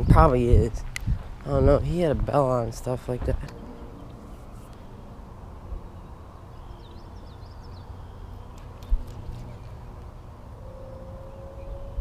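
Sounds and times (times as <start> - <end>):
wind rumble on microphone: 0.0 - 12.0
bird chirps: 5.8 - 10.0.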